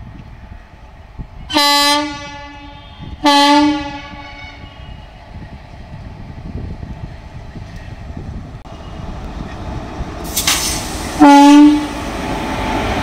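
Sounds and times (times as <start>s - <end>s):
locomotive rumble: 0.0s - 13.0s
locomotive horn blasts: 1.5s - 5.0s, 11.2s - 12.0s.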